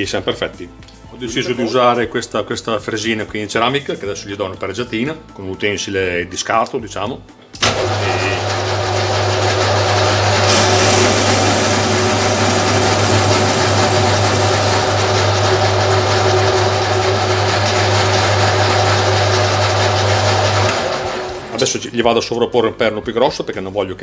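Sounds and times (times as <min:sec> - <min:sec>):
lathe motor hum: 0:07.6 - 0:21.8.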